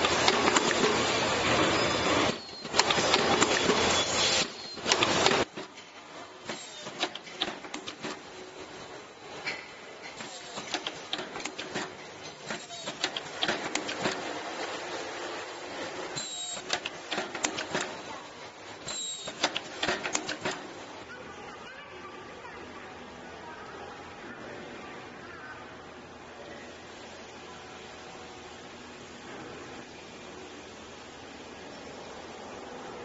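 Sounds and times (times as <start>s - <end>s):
welding machine clattering: 2.2s - 5.7s, 18.8s - 20.7s.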